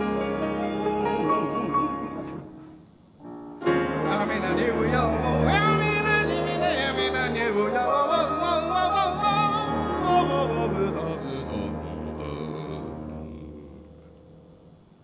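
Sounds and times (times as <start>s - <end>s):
man singing: 0.0s - 2.5s, 4.1s - 14.1s
jazz big band playing: 0.0s - 13.4s.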